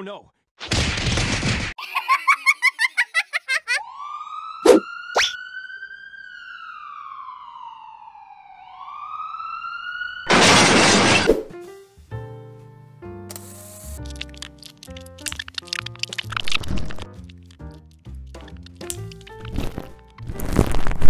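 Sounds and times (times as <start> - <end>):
cartoon ambulance siren wail: 3.5 - 10.3
sharp clicks: 14.0 - 19.4.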